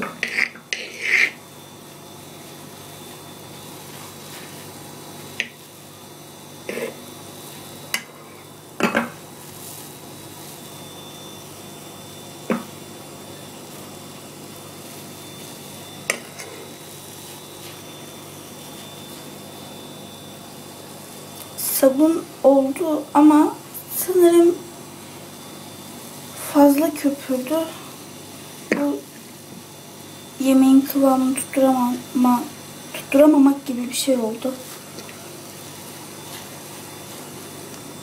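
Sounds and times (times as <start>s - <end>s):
spoon stirring soap foam: 0.0s - 1.4s.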